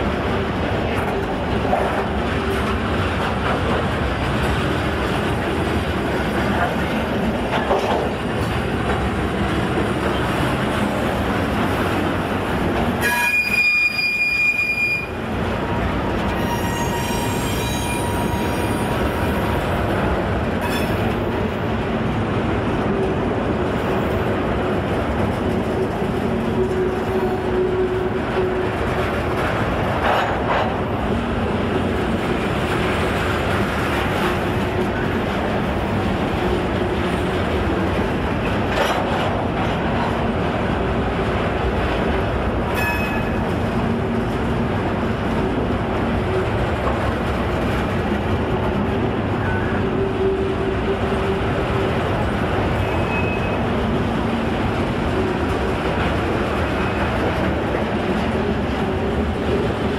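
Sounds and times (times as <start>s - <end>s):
train wheels rumbling and clattering: 0.0s - 59.9s
high-pitched wheel squeals: 13.0s - 15.2s, 16.3s - 18.9s, 52.8s - 53.6s.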